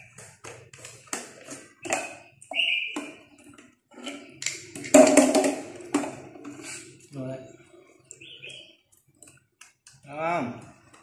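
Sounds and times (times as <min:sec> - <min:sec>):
jar clattering on tile floor: 0:00.1 - 0:06.8.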